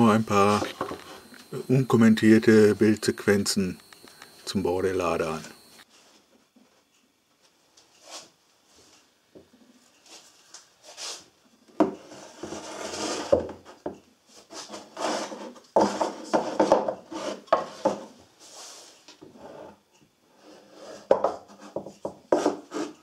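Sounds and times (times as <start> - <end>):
wooden boards scraping and knocking: 14.6 - 18.1.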